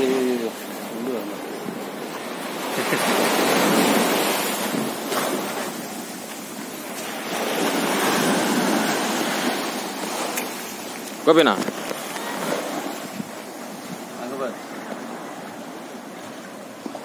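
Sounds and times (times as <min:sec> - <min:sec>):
sea surf washing on shore: 0:00.0 - 0:17.0
wind buffeting microphone: 0:11.4 - 0:17.0.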